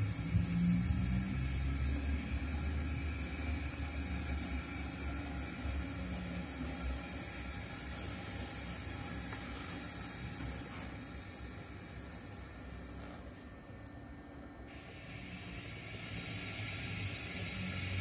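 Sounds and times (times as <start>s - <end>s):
model locomotive rumble: 0.0s - 13.4s, 14.7s - 18.0s
steady hiss: 0.0s - 13.8s, 14.6s - 18.0s.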